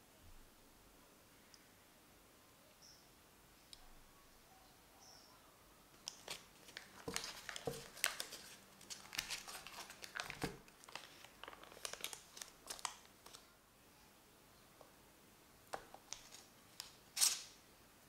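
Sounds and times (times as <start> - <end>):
foil wrapper crinkling: 6.0 - 13.4.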